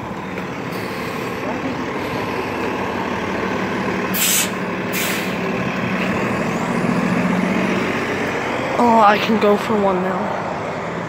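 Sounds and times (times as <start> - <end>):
bus engine droning: 0.0 - 11.0
air brake hisses: 4.1 - 5.4.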